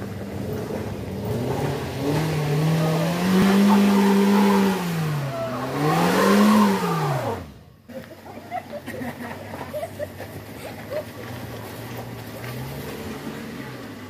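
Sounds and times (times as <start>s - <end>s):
van engine revving hard: 0.0s - 7.7s.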